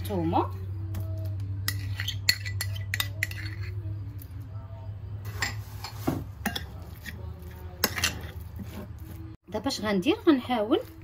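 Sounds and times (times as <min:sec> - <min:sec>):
metal spoon scraping ceramic bowl: 0:01.6 - 0:04.1, 0:05.2 - 0:09.0.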